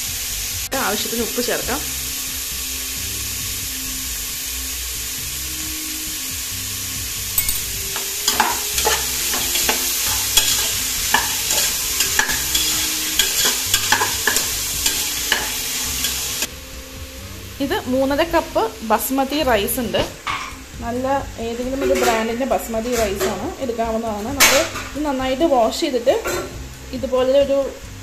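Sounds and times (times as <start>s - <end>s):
vegetables sizzling in oil: 0.0s - 28.0s
spatula scraping a pot: 7.8s - 16.5s.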